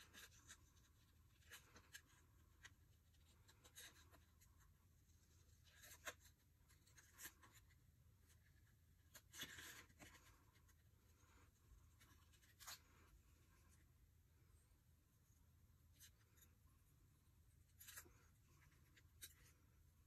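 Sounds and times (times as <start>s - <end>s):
paper rustling: 0.0s - 13.2s.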